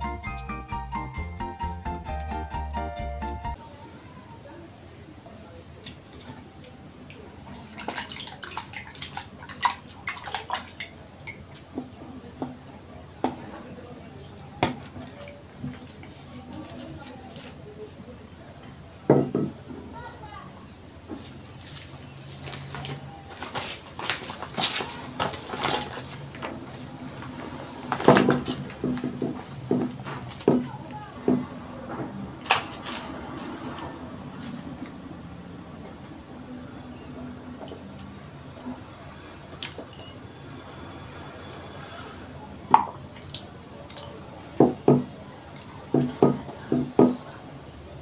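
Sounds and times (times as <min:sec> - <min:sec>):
water splashing in a cup: 0:05.8 - 0:12.7, 0:14.2 - 0:18.2, 0:21.4 - 0:31.6, 0:36.5 - 0:41.7, 0:42.7 - 0:47.3
dried leaves crinkling: 0:15.1 - 0:18.0, 0:21.1 - 0:31.5, 0:32.3 - 0:35.0.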